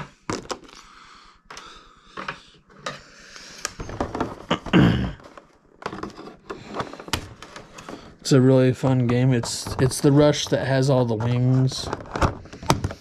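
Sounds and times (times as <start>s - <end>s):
packaging clicks and rustling: 9.0s - 13.0s.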